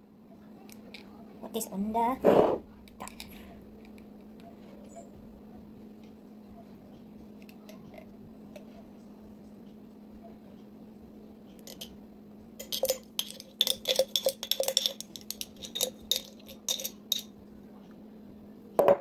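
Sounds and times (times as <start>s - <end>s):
steady low hum: 0.0s - 19.0s
spatula clinking on glass bottle: 12.6s - 17.3s.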